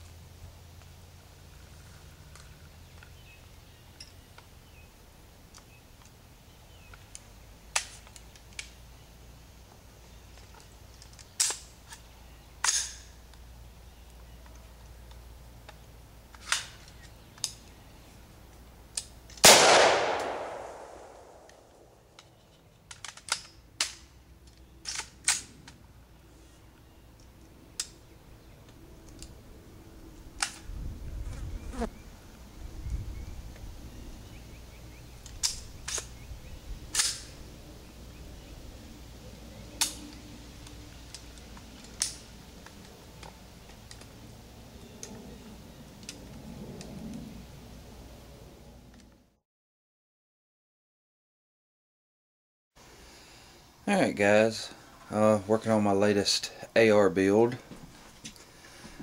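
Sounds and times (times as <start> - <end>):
metal clicks of rifle action: 10.4 - 13.4, 14.4 - 17.6, 18.9 - 21.6, 22.2 - 25.8, 35.2 - 36.2, 36.9 - 37.3, 39.8 - 44.2
rifle shot: 19.4 - 21.9.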